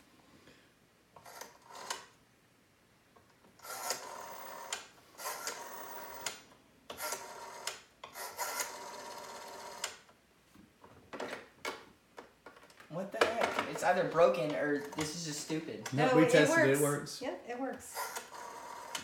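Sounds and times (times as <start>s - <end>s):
rotary dial whirring: 3.6s - 10.1s, 17.9s - 19.0s.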